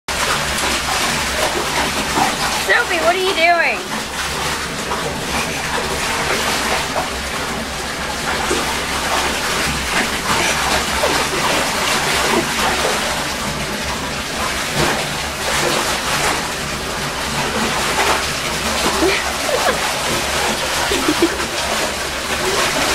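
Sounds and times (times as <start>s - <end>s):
dog splashing in bathwater: 0.1s - 22.9s.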